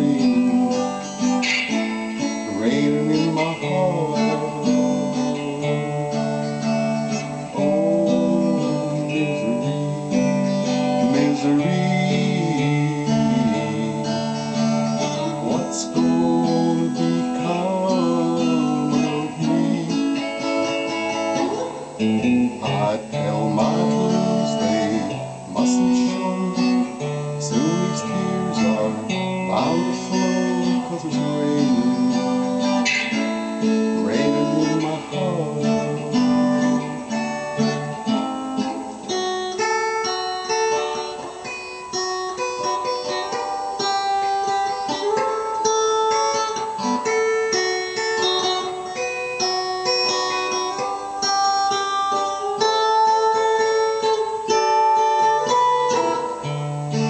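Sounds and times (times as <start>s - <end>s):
man singing: 0.0s - 39.2s
electric guitar strumming: 0.0s - 57.0s.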